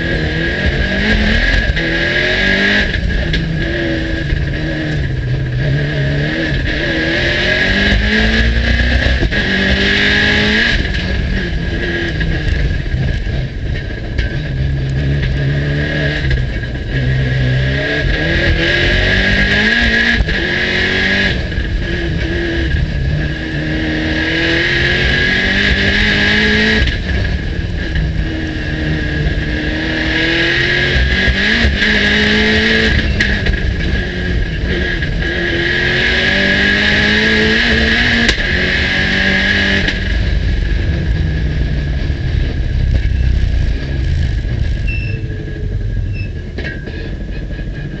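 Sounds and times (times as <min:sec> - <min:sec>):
car engine revving from inside cabin: 0:00.0 - 0:13.4, 0:14.6 - 0:45.8
turbo whine: 0:39.5 - 0:48.0.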